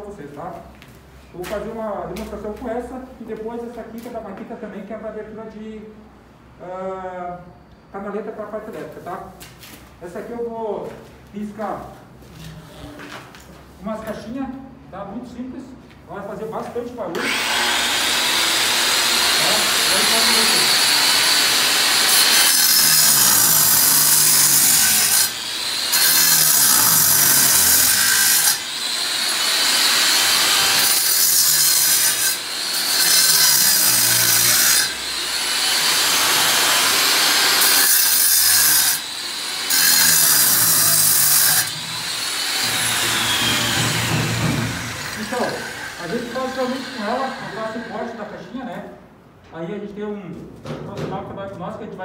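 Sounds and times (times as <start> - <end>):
angle grinder cutting brick: 17.2 - 48.0.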